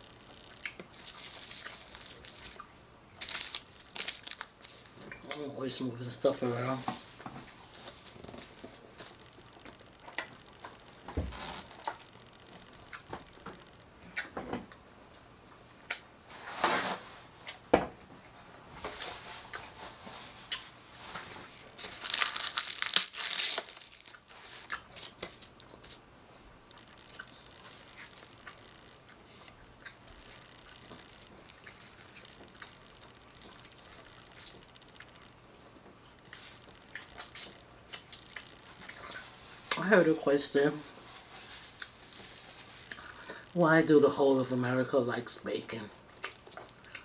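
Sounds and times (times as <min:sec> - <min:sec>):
chewing and crunching food: 0:00.3 - 0:05.4, 0:17.4 - 0:26.0, 0:26.6 - 0:39.9, 0:46.0 - 0:47.0
wrapper paper rustling: 0:00.9 - 0:05.0, 0:21.0 - 0:26.0.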